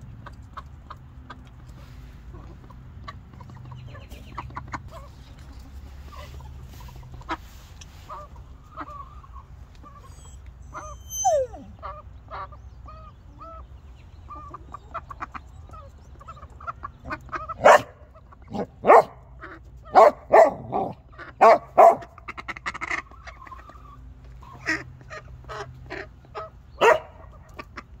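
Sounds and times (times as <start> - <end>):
dog barking: 17.6 - 19.2, 19.9 - 22.1, 26.8 - 27.3.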